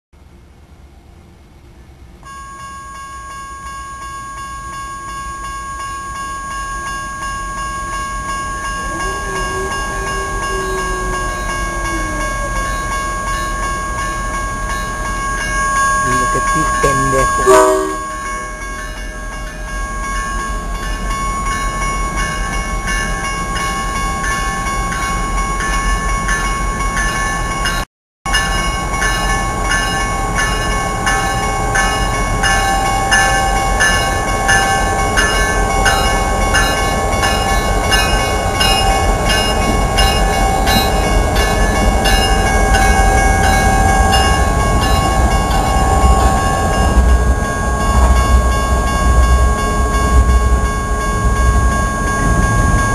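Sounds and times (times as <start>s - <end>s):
crossing bells ringing: 2.2s - 52.9s
diesel locomotive rumble: 8.7s - 18.4s.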